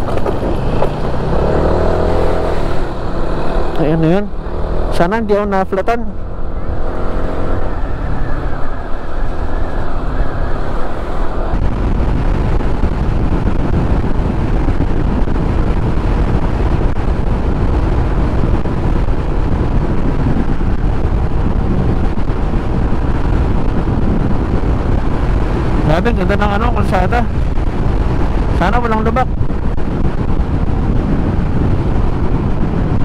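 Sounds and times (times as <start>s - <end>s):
motorcycle engine: 0.0s - 33.0s
wind rushing over microphone: 0.0s - 33.0s.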